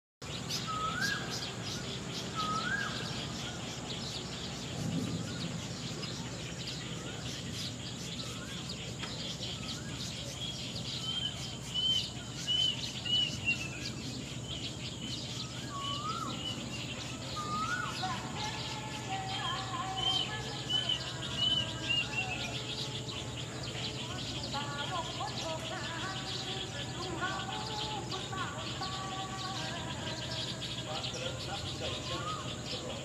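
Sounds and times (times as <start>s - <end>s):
faint bird chirps: 0.3s - 33.0s.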